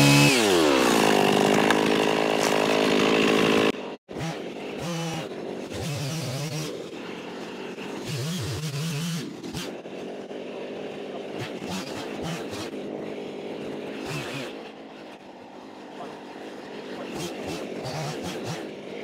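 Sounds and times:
small engine running: 0.0s - 19.0s.

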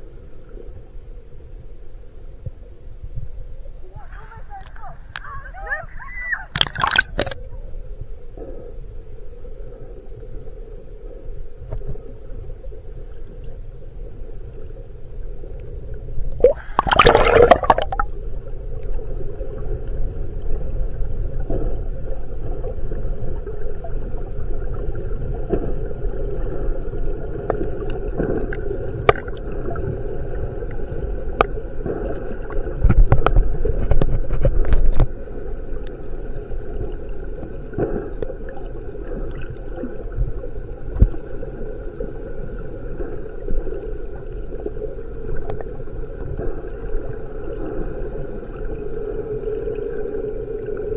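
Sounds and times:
faint hum: 0.0s - 50.9s
low underwater rumbling: 6.4s - 50.9s
underwater wash of water: 6.5s - 50.9s
gurgling burst: 16.4s - 18.1s.

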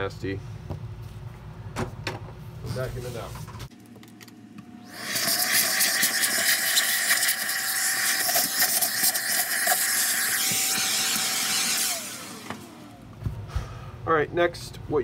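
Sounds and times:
vacuum motor winding down: 4.2s - 13.2s
vacuum cleaner motor running: 4.8s - 13.1s.

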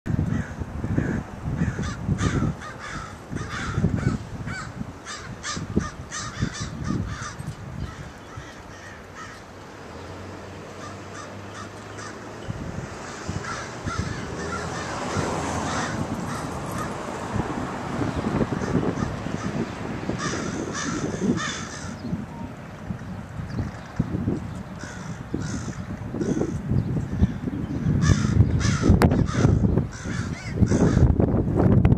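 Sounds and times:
crows cawing: 0.3s - 9.5s, 10.8s - 12.2s, 13.0s - 17.0s, 18.6s - 19.6s, 20.2s - 22.0s, 24.8s - 27.4s, 28.0s - 31.1s.

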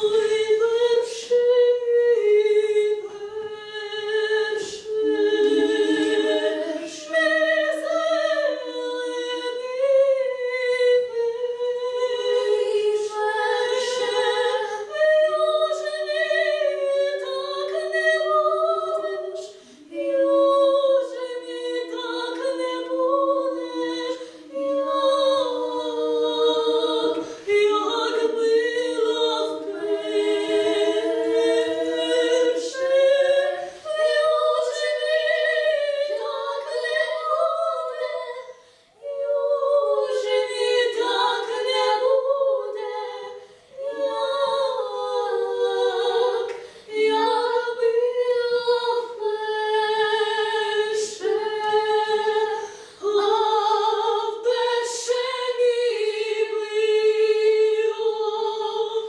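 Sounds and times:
two women singing a cappella: 0.0s - 59.0s
singers breathing: 19.5s - 19.9s, 38.5s - 39.0s, 46.6s - 46.9s, 52.6s - 53.0s.

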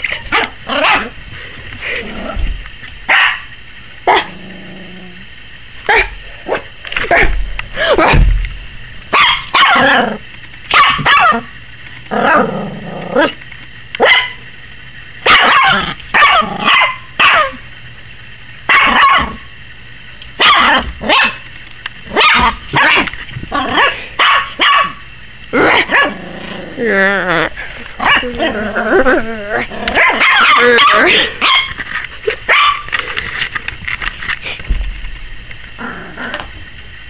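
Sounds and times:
puppy barking high-pitched: 0.3s - 1.1s, 3.1s - 3.5s, 4.1s - 4.3s, 5.9s - 7.4s, 9.1s - 10.0s, 10.7s - 11.5s, 14.0s - 14.4s, 15.2s - 17.6s, 18.7s - 19.5s, 20.4s - 21.4s, 22.1s - 25.0s, 25.6s - 26.2s, 28.0s - 28.5s, 29.9s - 31.8s, 32.5s - 32.9s
drawn-out lower bark: 3.1s - 4.4s, 9.1s - 11.5s, 15.2s - 17.6s, 18.7s - 19.5s, 20.4s - 21.4s, 22.1s - 25.0s, 25.6s - 26.2s, 29.8s - 31.7s.

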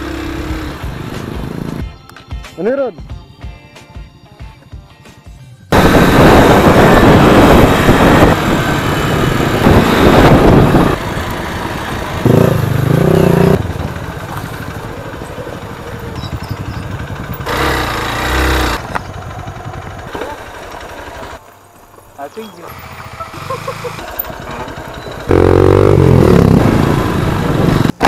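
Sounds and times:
motorcycle engine running: 0.0s - 1.8s, 5.8s - 28.0s
wind rushing over microphone: 5.8s - 13.1s, 25.8s - 28.0s.

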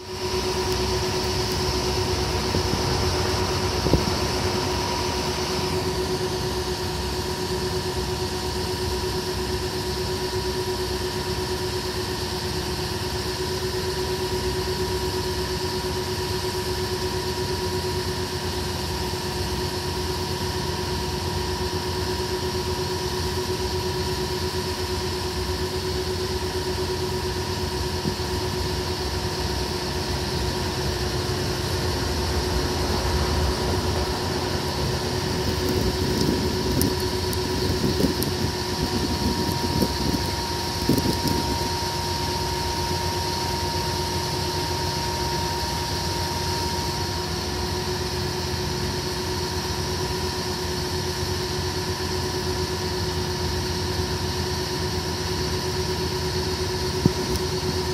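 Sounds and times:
machine hum: 25.3s - 48.2s.

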